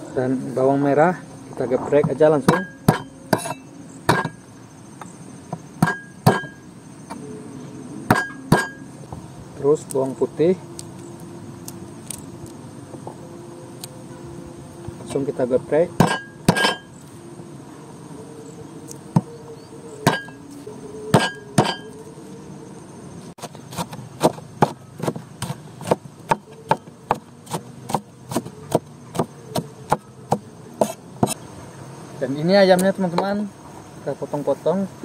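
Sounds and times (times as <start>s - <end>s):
cleaver chopping on wooden board: 2.4s - 4.4s, 5.8s - 6.6s, 16.0s - 16.8s, 21.1s - 21.9s, 23.4s - 31.4s.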